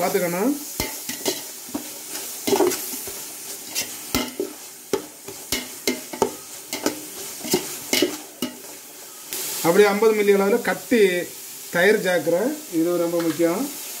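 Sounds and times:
masala sizzling in oil: 0.0s - 14.0s
spatula scraping metal pot: 0.8s - 8.8s.

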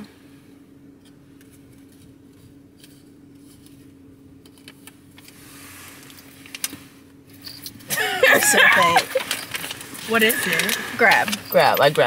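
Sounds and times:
paper crinkling and rustling: 8.3s - 12.0s.

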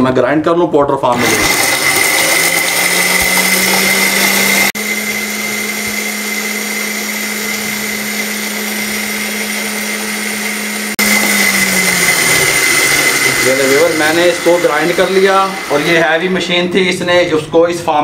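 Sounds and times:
electric spice grinder whining: 1.1s - 16.4s.

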